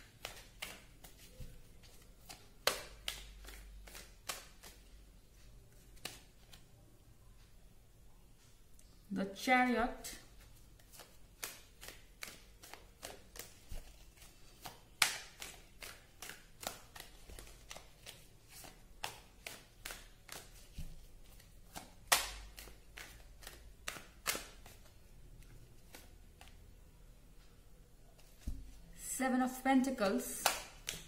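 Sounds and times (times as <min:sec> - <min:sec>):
cards being shuffled: 0:00.0 - 0:04.8, 0:06.0 - 0:06.7, 0:10.7 - 0:26.6, 0:30.4 - 0:31.0.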